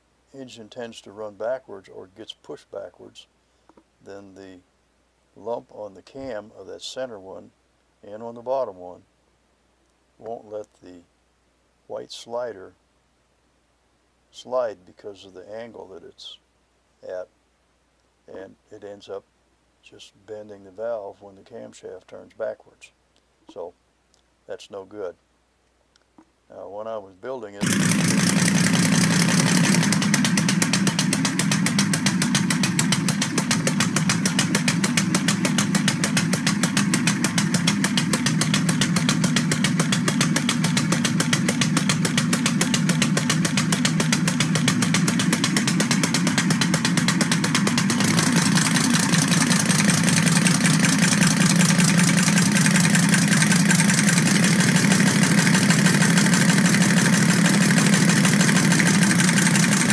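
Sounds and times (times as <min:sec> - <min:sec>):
compressed-air engine running: 0:27.6 - 0:59.9
exhaust air puffs: 0:27.6 - 0:59.9
valve clatter: 0:27.6 - 0:59.9.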